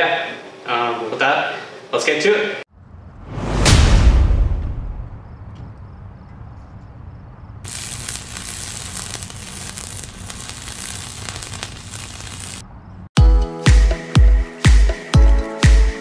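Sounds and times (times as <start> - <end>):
low rumble: 2.7 - 6.8
dense crackling sizzling effect: 7.6 - 12.6.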